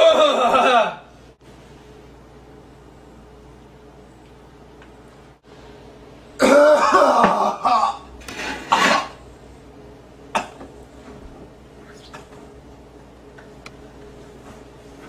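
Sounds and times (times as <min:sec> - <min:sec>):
man coughing: 0:06.4 - 0:08.1, 0:10.3 - 0:10.6.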